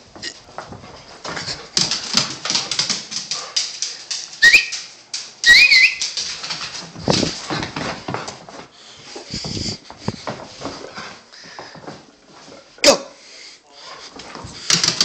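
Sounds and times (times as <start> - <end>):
high squeaky rising calls: 5.4 - 6.0.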